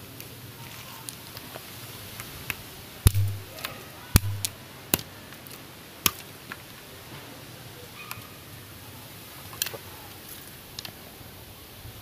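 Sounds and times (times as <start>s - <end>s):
knife chopping bamboo: 3.1s - 3.5s, 4.2s - 4.6s
low thud: 3.1s - 3.5s, 4.2s - 4.5s.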